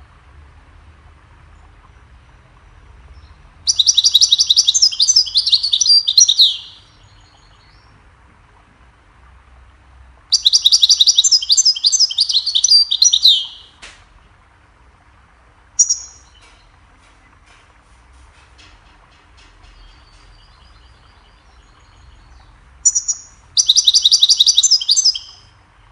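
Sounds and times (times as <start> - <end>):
goldfinch twittering song: 3.1 - 8.0, 10.2 - 13.8, 15.8 - 16.8, 19.4 - 25.6.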